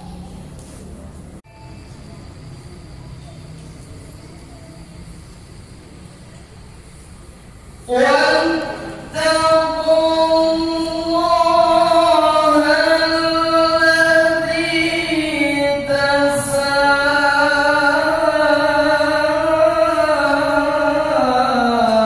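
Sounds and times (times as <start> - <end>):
person chanting melodic recitation: 7.8 - 22.0.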